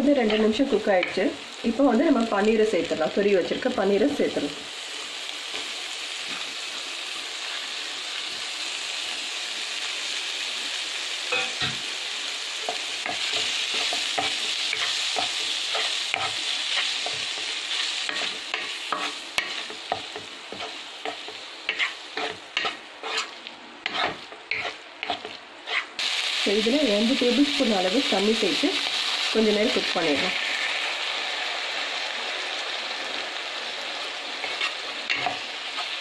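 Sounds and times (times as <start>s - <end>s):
food sizzling in a pan: 0.0s - 36.0s
spatula scraping a pan: 12.7s - 26.0s, 34.4s - 36.0s.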